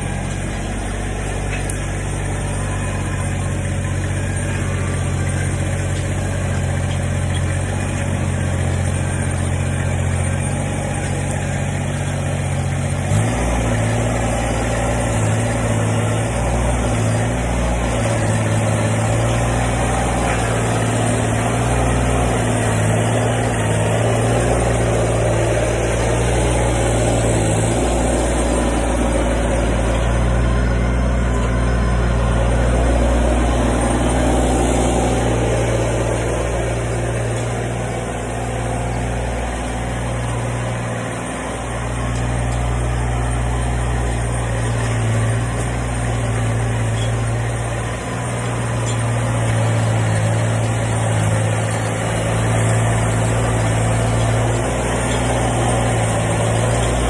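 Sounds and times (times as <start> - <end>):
tractor engine under load: 0.0 - 57.0.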